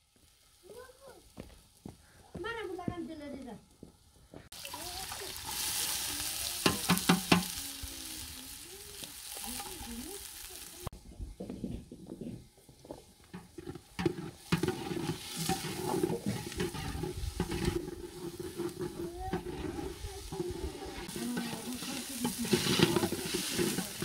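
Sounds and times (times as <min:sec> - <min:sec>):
onions sizzling in oil: 0:00.0 - 0:10.9, 0:12.7 - 0:24.0
metal ladle scraping pot: 0:13.3 - 0:24.0.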